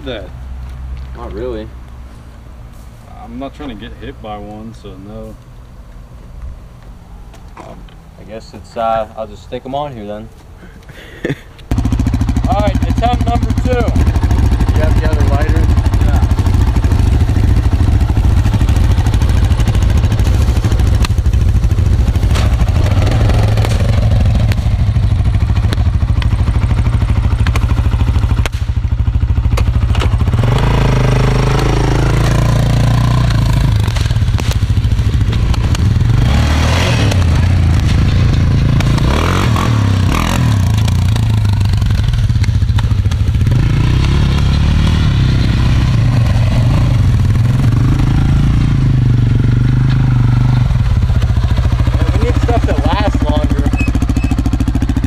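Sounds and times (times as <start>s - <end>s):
motorcycle engine idling: 11.7s - 36.3s, 39.9s - 55.0s
motorcycle engine revving: 11.7s - 55.0s.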